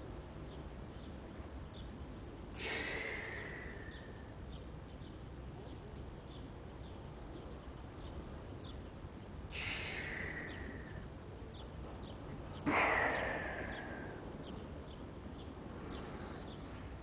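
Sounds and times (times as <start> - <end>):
small birds chirping: 0.0 - 17.0
hissing rush: 9.5 - 11.0, 12.7 - 14.4.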